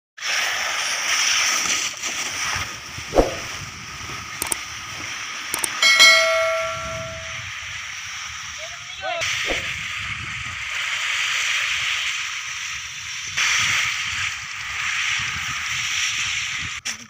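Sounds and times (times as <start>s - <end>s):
mouse clicks: 5.6s - 5.8s
bell chime: 5.6s - 7.4s.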